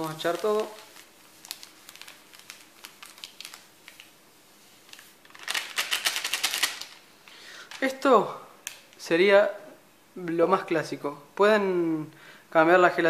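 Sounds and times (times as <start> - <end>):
plastic sachet crinkling: 0.0 - 8.0.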